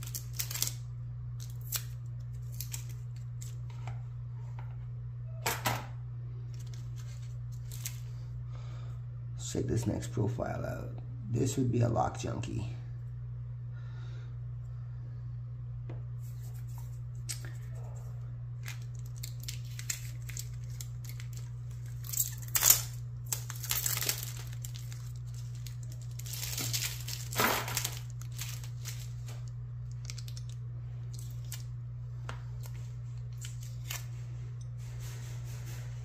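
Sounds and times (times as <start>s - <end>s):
plastic packaging crinkling: 0.0s - 3.6s, 6.5s - 8.1s, 18.6s - 31.8s
steady low hum: 0.0s - 36.0s.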